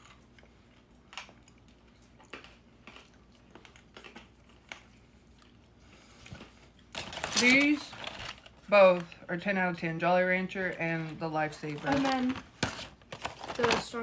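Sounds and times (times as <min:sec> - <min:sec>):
hard candy crunching: 0:00.0 - 0:09.4.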